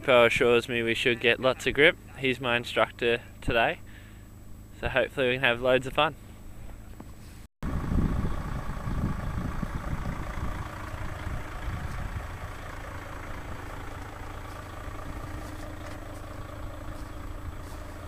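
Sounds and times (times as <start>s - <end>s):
vehicle engine idling: 0.0s - 18.0s.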